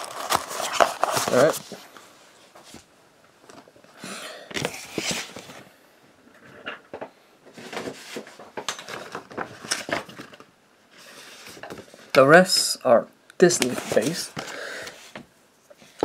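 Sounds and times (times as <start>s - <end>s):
packing tape rustling: 0.0s - 1.8s, 7.6s - 10.5s.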